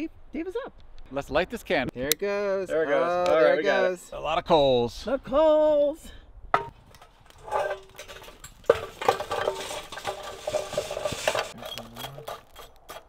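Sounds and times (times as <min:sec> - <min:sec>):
coals clattering and scraping: 0:06.6 - 0:13.0.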